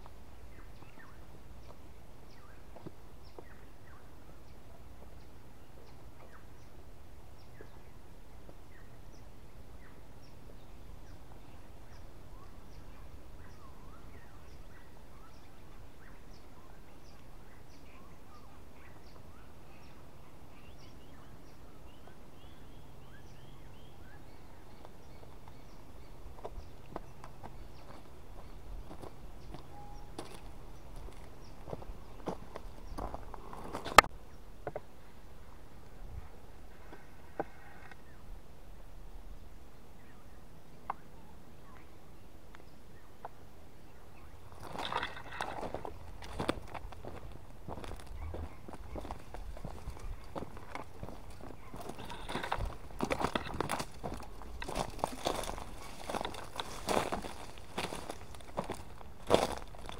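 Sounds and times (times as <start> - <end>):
small birds chirping: 0.0 - 35.2, 39.7 - 59.9
low background noise: 0.0 - 59.9
footsteps on dry leaves: 27.4 - 34.0, 44.5 - 59.9.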